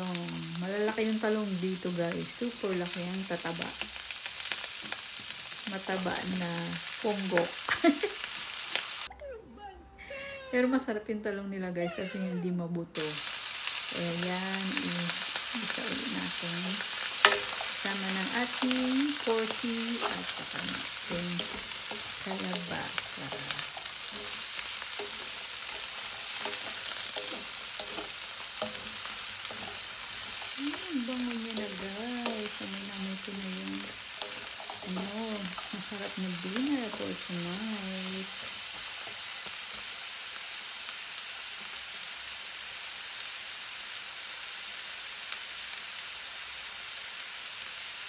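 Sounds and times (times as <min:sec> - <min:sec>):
food sizzling in a wok: 0:00.0 - 0:09.1, 0:13.0 - 0:48.0
wooden spoon scraping a pan: 0:16.2 - 0:37.4.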